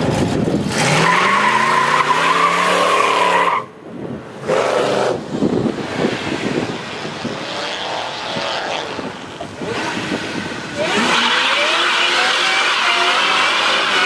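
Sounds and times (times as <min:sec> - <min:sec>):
car engines revving: 0:00.0 - 0:14.0
tire squeal: 0:00.8 - 0:03.8, 0:09.7 - 0:14.0.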